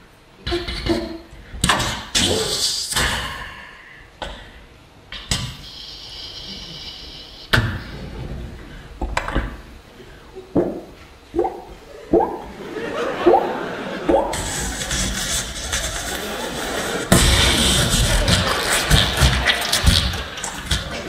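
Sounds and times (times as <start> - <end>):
beatboxing into a microphone: 0.4 - 4.4, 5.1 - 7.9, 14.1 - 21.0.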